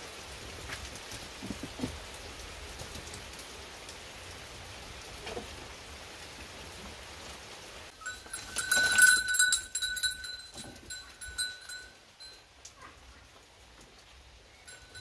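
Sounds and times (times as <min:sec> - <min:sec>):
rain hiss: 0:00.0 - 0:15.0
goat bell clanking: 0:08.0 - 0:12.5, 0:14.7 - 0:15.0.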